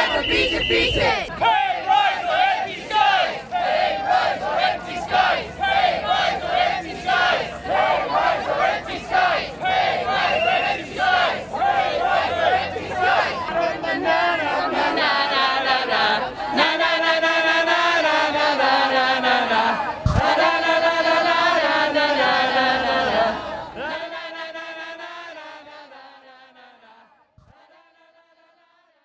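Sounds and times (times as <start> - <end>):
crowd chanting in unison: 0.0 - 29.0.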